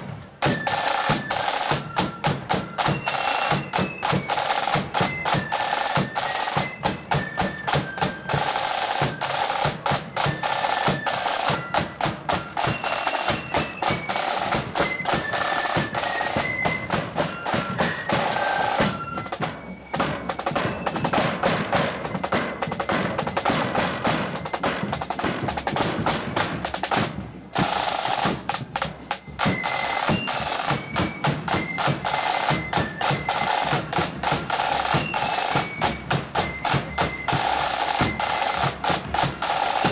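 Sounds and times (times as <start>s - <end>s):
snare drum beats and rolls: 0.0s - 39.9s
high flute melody: 0.3s - 25.2s, 27.6s - 39.9s.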